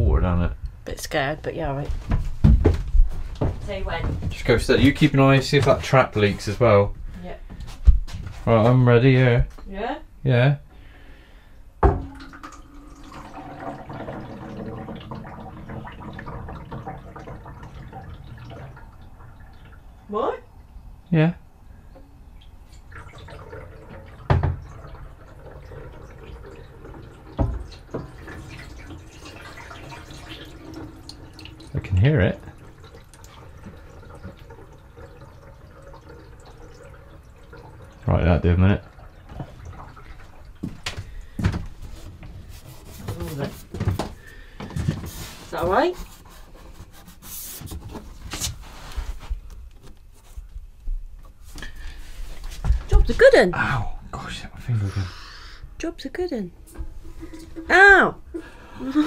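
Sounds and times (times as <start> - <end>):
water running down pipe: 1.1 - 9.9, 11.8 - 21.3, 21.9 - 49.3, 51.3 - 59.0
short rustles: 41.0 - 50.7
hand rubbing plastic pipe: 41.4 - 52.8.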